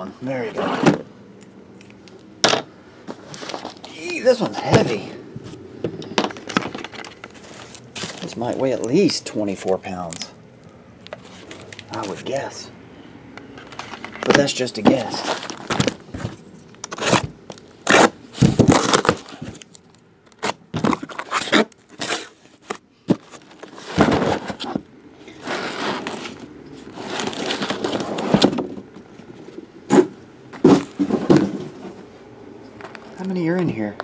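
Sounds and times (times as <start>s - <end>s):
cardboard scraping and rustling: 0.5s - 1.1s, 3.1s - 5.6s, 6.2s - 9.1s, 13.6s - 19.6s, 20.4s - 32.1s
boxes knocking when set down: 23.1s - 24.8s, 29.9s - 32.0s.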